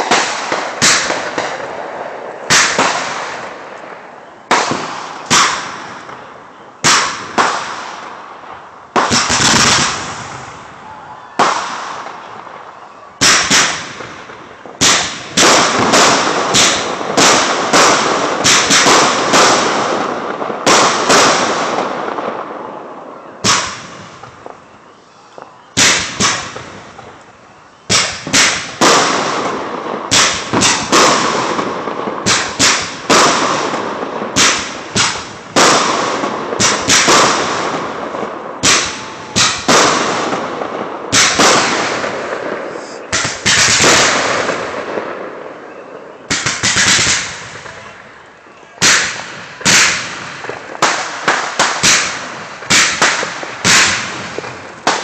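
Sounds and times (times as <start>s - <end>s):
fireworks bursting with echo: 0.0s - 55.0s.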